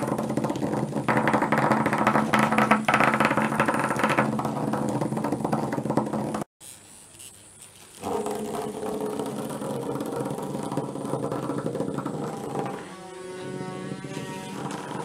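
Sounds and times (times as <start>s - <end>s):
robot bugs buzzing: 6.6s - 15.0s.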